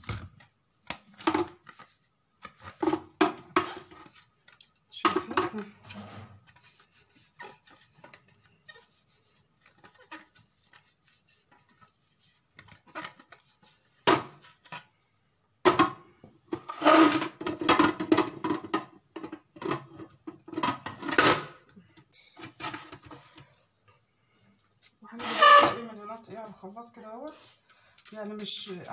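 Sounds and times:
plastic parts knocking and scraping: 0.0 - 14.9, 15.6 - 23.6
cloth rubbing on plastic: 5.9 - 14.0.

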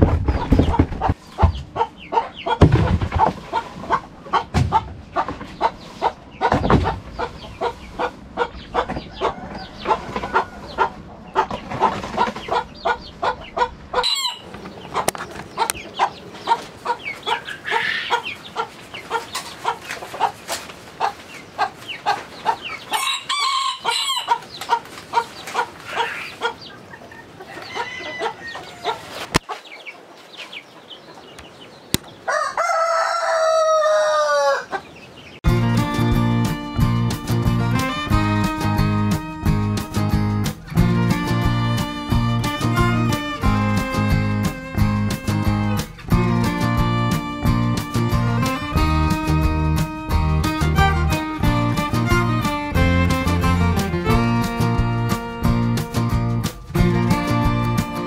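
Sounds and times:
chickens clucking: 0.0 - 58.0
rooster crowing: 9.1 - 10.8, 14.0 - 14.5, 23.0 - 24.3, 27.5 - 29.2, 32.3 - 34.8
guitar music: 35.4 - 58.0.

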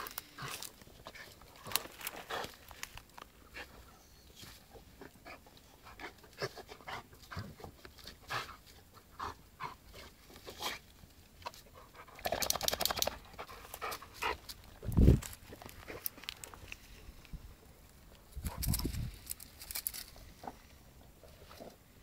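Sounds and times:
dry leaves crackling: 0.0 - 3.4, 18.6 - 20.3
dog panting: 13.0 - 14.5.

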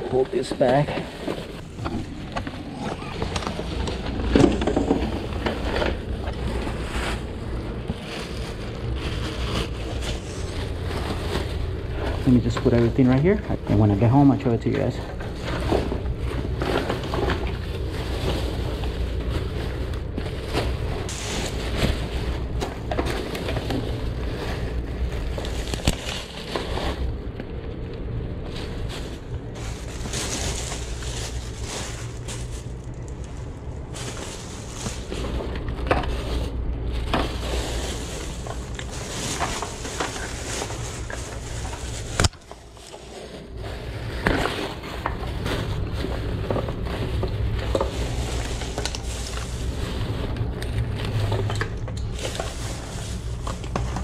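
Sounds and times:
plastic bags rustling: 0.0 - 54.0
steady low rumble: 0.0 - 54.0
items knocking together: 0.3 - 6.8.

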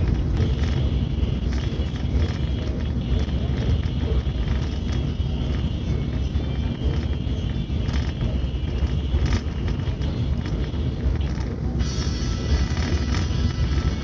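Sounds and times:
train rumble: 0.0 - 14.0.

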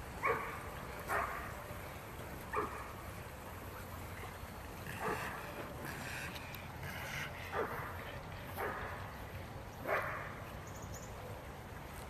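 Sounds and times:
creek running over rocks: 0.0 - 12.0
dog barking: 0.2 - 1.4, 2.5 - 2.8, 7.5 - 7.9, 9.8 - 10.3.

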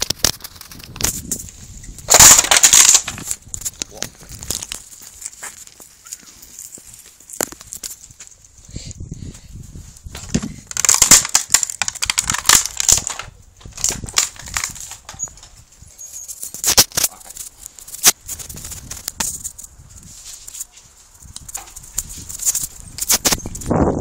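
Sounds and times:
bicycle rattling over blocks: 0.0 - 4.8, 10.1 - 19.7.

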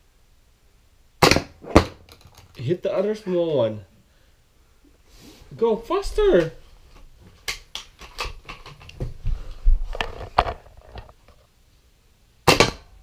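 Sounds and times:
plastic toys clicking and knocking: 2.1 - 2.6, 7.4 - 9.0.

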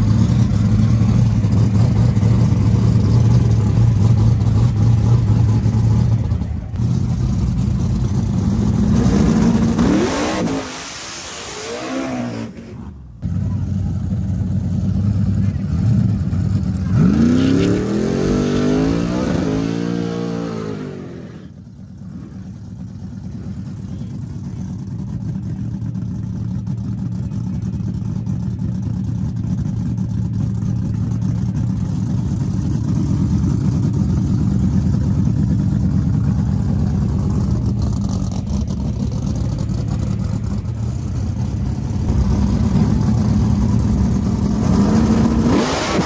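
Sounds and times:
car engine idling and revving: 0.0 - 46.0.

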